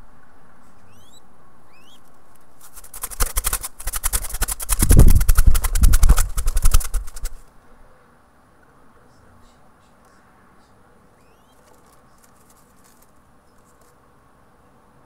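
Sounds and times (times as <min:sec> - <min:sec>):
bird chirps: 0:00.8 - 0:02.1, 0:11.2 - 0:11.8
wings flapping: 0:02.0 - 0:07.5, 0:11.3 - 0:13.9.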